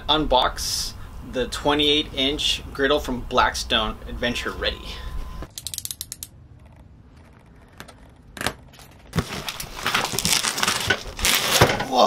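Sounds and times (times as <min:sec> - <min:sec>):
cardboard box scraping and rustling: 0:09.1 - 0:11.7.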